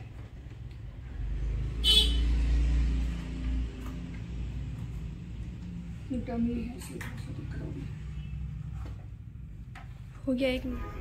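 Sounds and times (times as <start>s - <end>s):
vehicle passing by: 1.0s - 9.2s.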